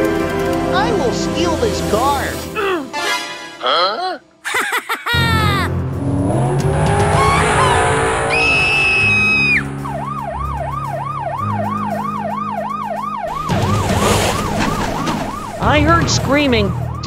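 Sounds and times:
background music: 0.0 - 17.0
steady high tone: 6.0 - 10.1
police siren yelping: 6.7 - 17.0.

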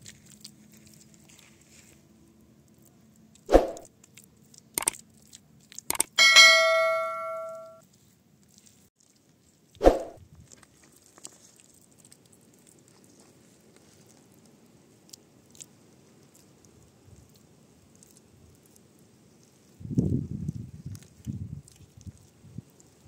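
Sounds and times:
ringing metal clang: 6.2 - 7.8.

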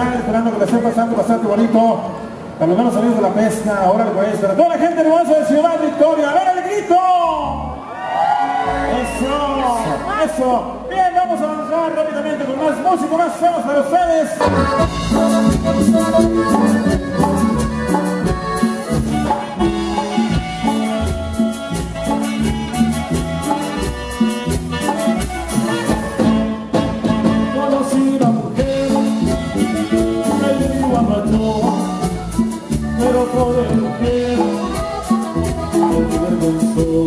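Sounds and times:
live band dance music: 8.6 - 37.0
saxophone: 14.4 - 28.0
button accordion: 14.4 - 37.0.

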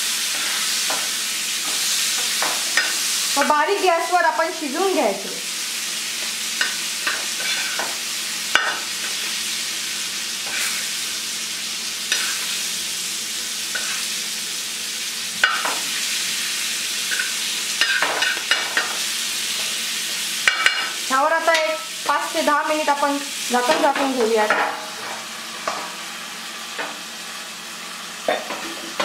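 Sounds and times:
fish sizzling in oil: 0.0 - 29.0
spatula scraping and tapping pan: 6.2 - 9.2, 23.7 - 26.0.

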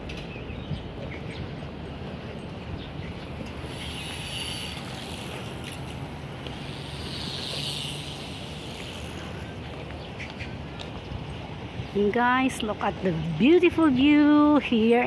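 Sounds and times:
short hissing sounds: 6.5 - 9.5.

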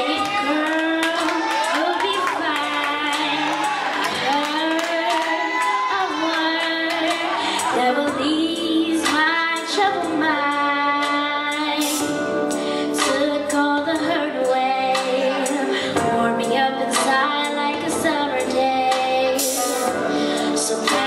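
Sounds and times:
girl singing gospel song: 0.0 - 21.0
musical accompaniment: 0.0 - 21.0.

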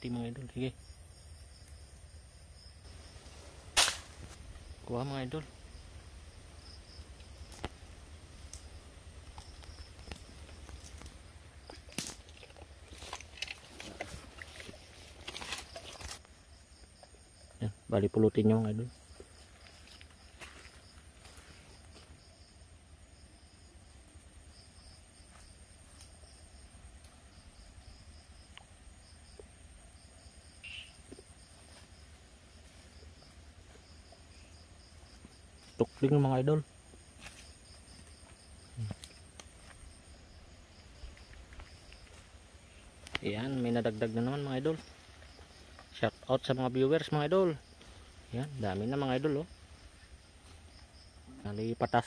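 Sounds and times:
crickets trilling: 0.0 - 52.0
pulsed insect chirp: 0.0 - 52.0
sharp clicks or snaps: 3.8 - 4.2.

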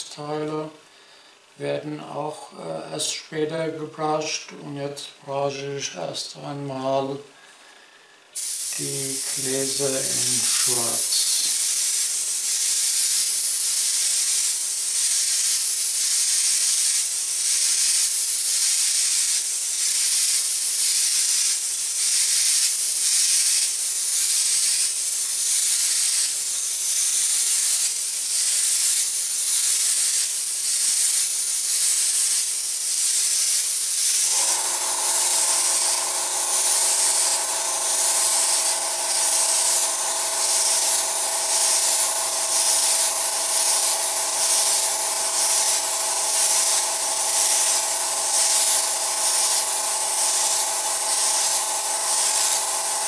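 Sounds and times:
airbrush air hiss: 7.4 - 53.0.

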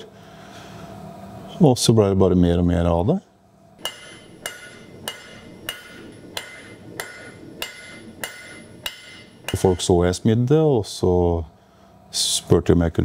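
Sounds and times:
hammer striking metal on anvil: 3.8 - 10.1.

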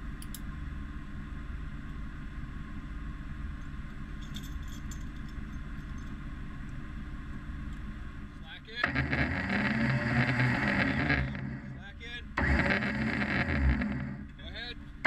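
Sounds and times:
light metallic clinks: 3.6 - 6.3
engine idling: 4.2 - 15.0.

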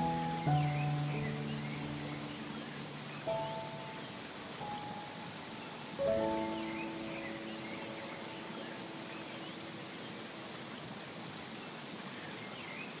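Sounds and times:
soft musical chord: 0.0 - 9.4
rushing water hiss: 0.0 - 13.0.

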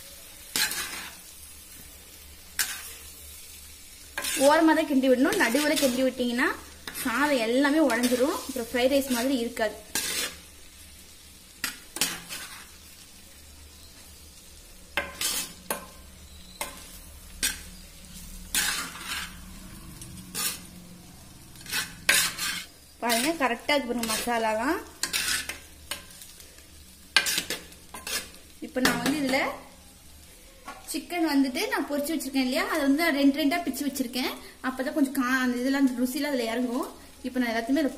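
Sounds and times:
rice sizzling in a clay pot: 0.0 - 37.9
utensil scraping and knocking pot: 15.0 - 15.9, 21.6 - 23.4.

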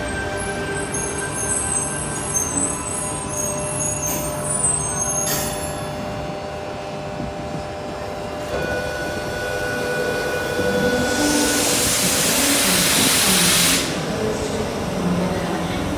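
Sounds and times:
electric train equipment humming: 0.0 - 15.9
air hissing: 11.1 - 14.0.

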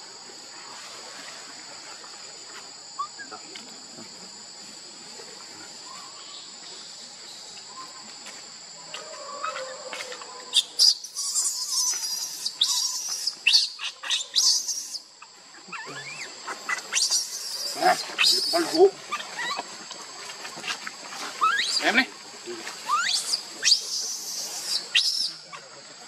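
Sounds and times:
high insect drone: 0.0 - 26.0
baby monkey distress squeals: 10.6 - 15.0, 22.9 - 25.3.

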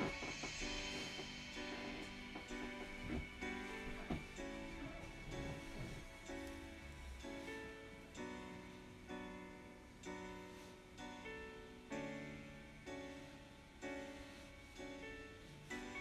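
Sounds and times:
piano chords: 0.0 - 16.0.

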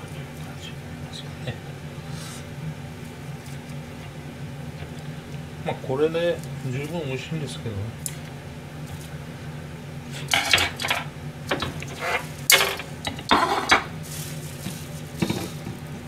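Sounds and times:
steady low hum: 0.0 - 16.0
plate and rack clattering on counter: 10.3 - 13.9.

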